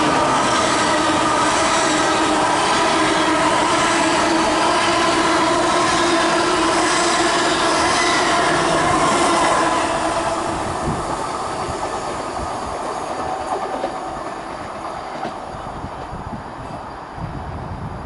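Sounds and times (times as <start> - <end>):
train running past on rails: 0.0 - 18.0.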